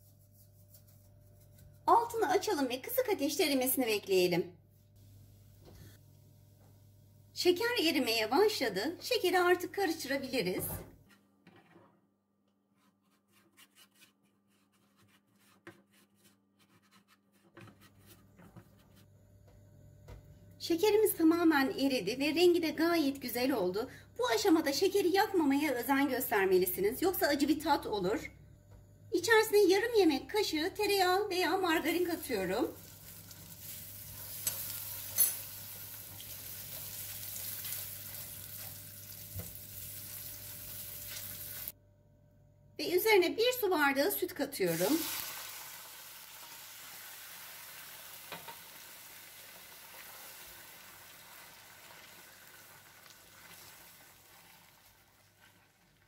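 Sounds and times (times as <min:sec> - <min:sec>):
butter sizzling in pan: 0:32.8 - 0:41.7, 0:44.9 - 0:56.0
spatula scraping a frying pan: 0:33.1 - 0:40.2.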